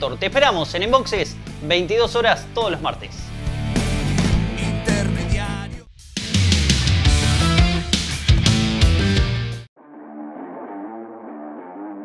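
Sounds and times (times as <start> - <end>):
plucked string background music: 6.8 - 12.0.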